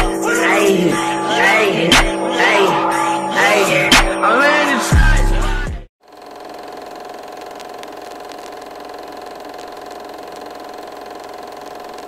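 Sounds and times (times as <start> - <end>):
music: 0.0 - 5.9.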